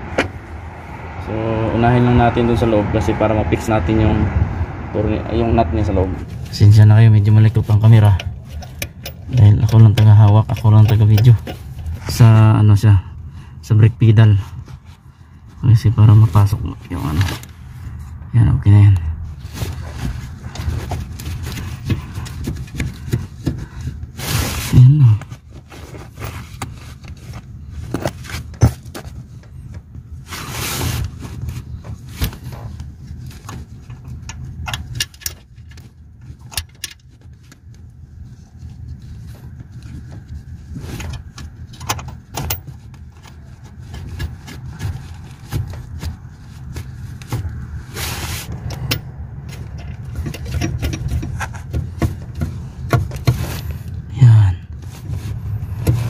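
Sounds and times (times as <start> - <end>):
metallic clicks and scrapes: 7.8 - 12.2, 30.4 - 54.0.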